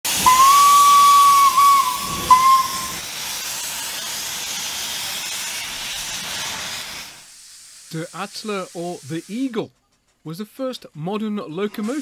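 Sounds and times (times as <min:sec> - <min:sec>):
hiss of escaping steam: 0:00.0 - 0:09.7
steam locomotive whistle: 0:00.1 - 0:03.1.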